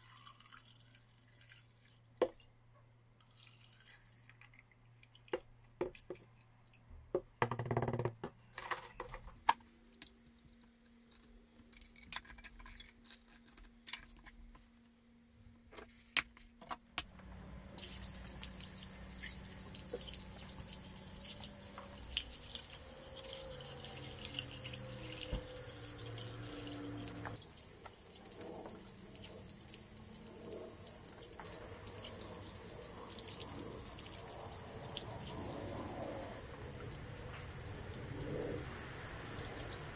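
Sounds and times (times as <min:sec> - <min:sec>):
water running from a tap: 0:17.8 - 0:39.9.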